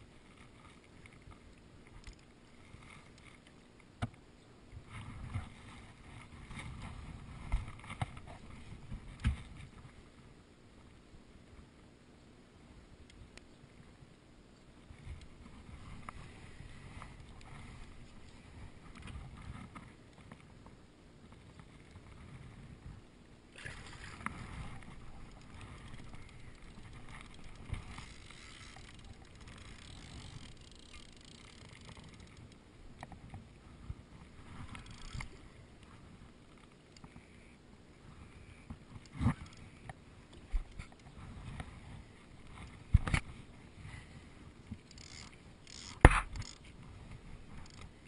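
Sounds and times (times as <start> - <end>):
water sloshing and splashing: 23.5 - 33.4.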